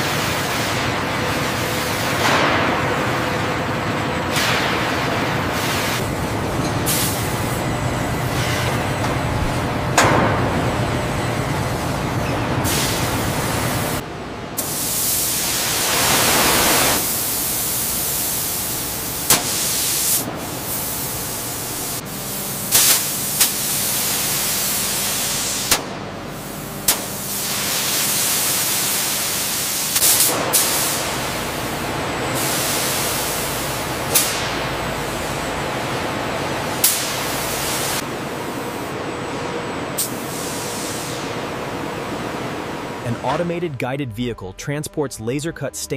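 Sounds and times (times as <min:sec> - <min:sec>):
machinery clanks: 0:01.9 - 0:14.0
machinery hiss: 0:06.8 - 0:08.8, 0:12.6 - 0:14.0, 0:14.6 - 0:35.4, 0:36.6 - 0:39.0, 0:40.0 - 0:41.5.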